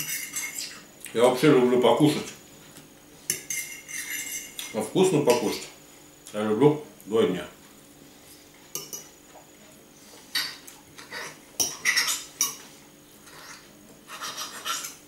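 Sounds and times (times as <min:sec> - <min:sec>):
fork scraping a plate: 0:00.0 - 0:00.9, 0:03.3 - 0:05.4, 0:10.1 - 0:12.6, 0:13.2 - 0:15.0.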